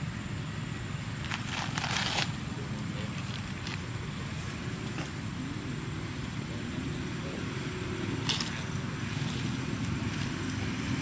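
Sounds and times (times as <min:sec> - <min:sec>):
steady low rumble: 0:00.0 - 0:11.0
rustling and crackling: 0:01.2 - 0:05.2.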